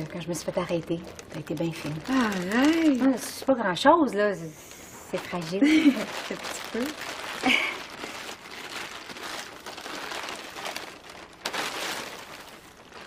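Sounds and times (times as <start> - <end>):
gift wrapping rustling: 0.0 - 13.0.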